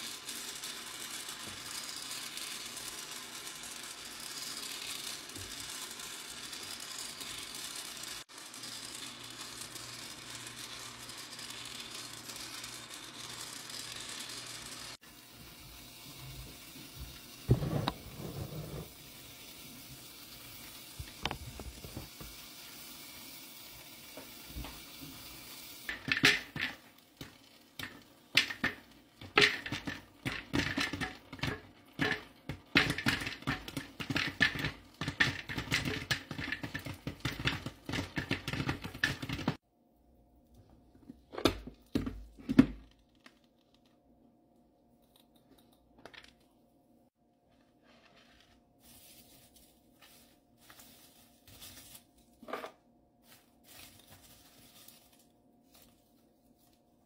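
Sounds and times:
popcorn kernels popping: 0.0s - 39.6s
popcorn maker hiss: 0.0s - 39.6s.

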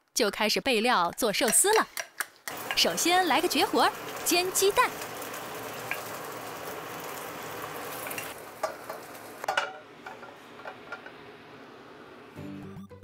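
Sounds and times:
egg sizzling in a pan: 2.5s - 12.4s.

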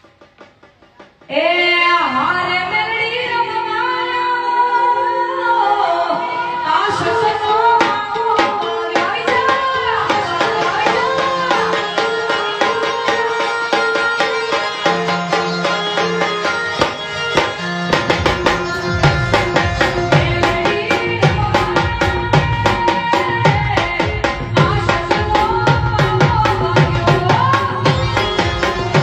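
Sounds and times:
drum strokes: 0.0s - 1.6s, 7.8s - 29.0s
woman singing: 1.3s - 17.0s, 19.2s - 29.0s.

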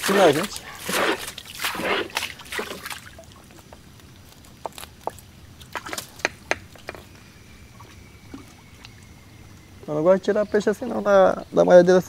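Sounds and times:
water dripping from net: 0.0s - 4.4s.

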